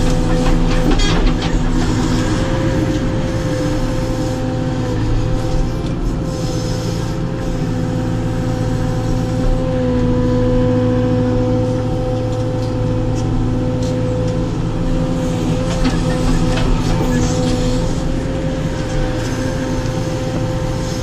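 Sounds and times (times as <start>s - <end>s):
diesel engine under load: 0.0s - 21.0s
hydraulic whine: 0.0s - 21.0s.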